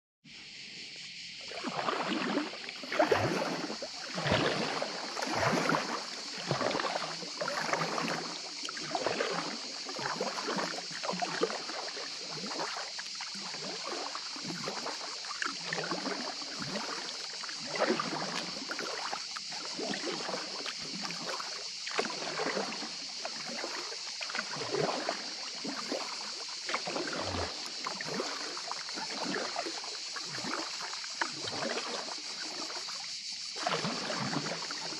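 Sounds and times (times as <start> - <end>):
paddle splashing in water: 0.5 - 34.9.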